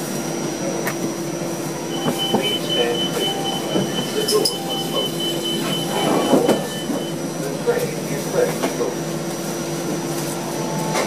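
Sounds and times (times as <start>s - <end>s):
train running noise: 0.0s - 11.0s
high whining tone: 1.9s - 7.2s
train doors sliding open: 1.9s - 7.2s.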